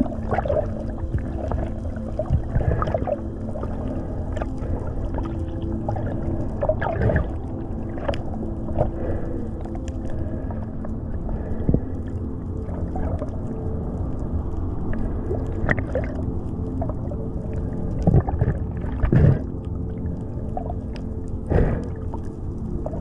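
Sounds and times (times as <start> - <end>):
clicks and crackles: 0.0 - 10.9
faint steady hum: 0.0 - 23.0
low rumble of water: 0.0 - 23.0.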